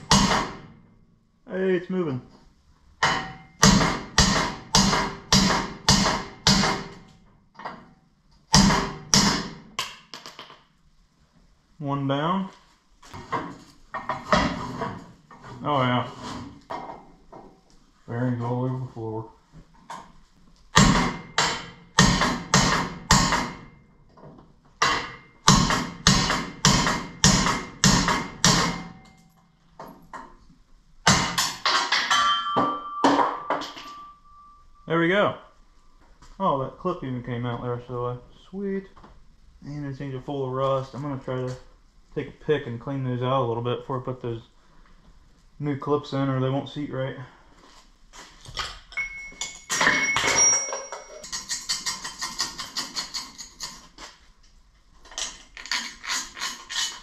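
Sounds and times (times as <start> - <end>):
hammer striking steel punch: 0.0 - 0.7, 3.0 - 7.0, 8.5 - 10.1, 20.8 - 23.7, 24.8 - 29.1, 31.0 - 34.2
light metal clinks: 48.9 - 51.5.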